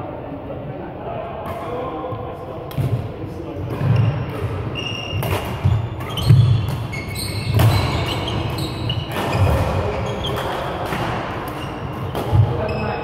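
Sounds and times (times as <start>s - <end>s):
shoe squeaks: 3.8s - 10.8s, 11.5s - 13.0s
racket striking shuttlecock: 5.2s - 12.6s.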